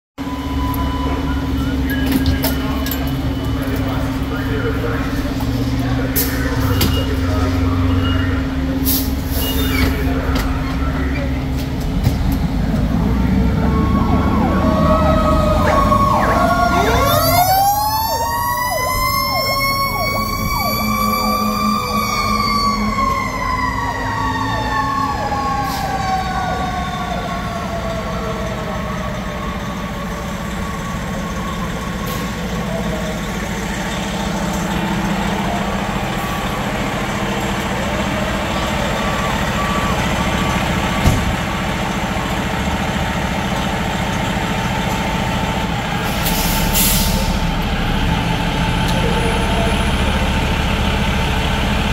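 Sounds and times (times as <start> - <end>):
diesel engines running: 0.2 - 51.9
fire truck siren winding: 13.5 - 28.3.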